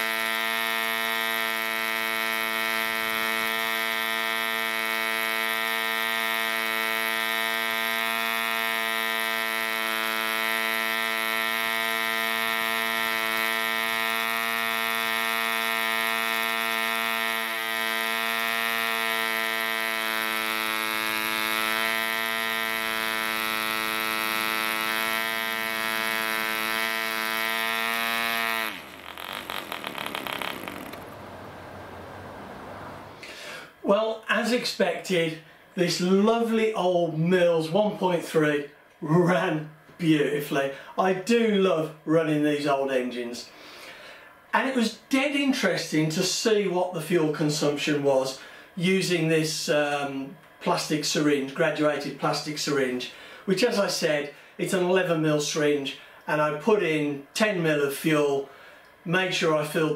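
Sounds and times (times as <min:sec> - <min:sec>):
model diesel engine running: 0:00.0 - 0:33.7.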